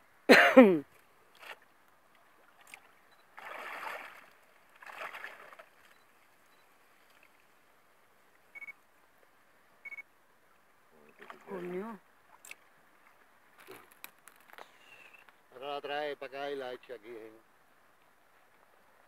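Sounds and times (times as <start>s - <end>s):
water splashing and sloshing: 0.9s - 8.5s, 10.4s - 14.6s.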